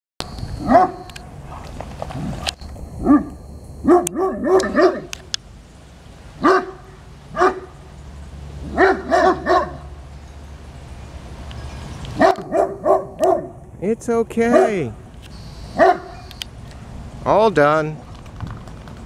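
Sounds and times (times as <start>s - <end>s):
large dogs barking: 0.6s - 5.2s, 6.4s - 7.9s, 8.6s - 10.0s, 12.2s - 13.6s, 14.4s - 15.1s, 15.8s - 16.3s.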